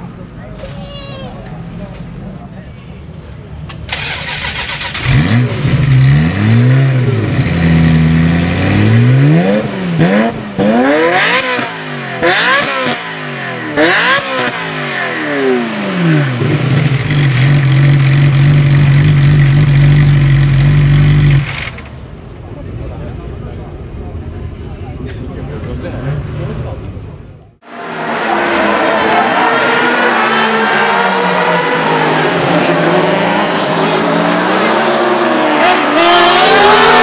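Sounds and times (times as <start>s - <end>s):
sports car engine revving: 4.0s - 21.9s, 27.9s - 37.0s.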